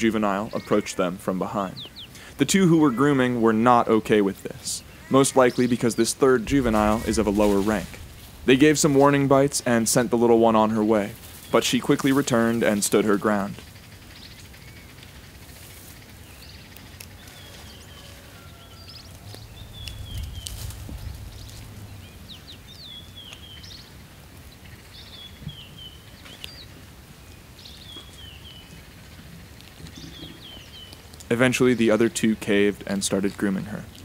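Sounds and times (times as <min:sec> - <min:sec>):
bird chirping: 0:00.0 - 0:34.0
low rumble: 0:06.2 - 0:11.4, 0:19.2 - 0:23.9.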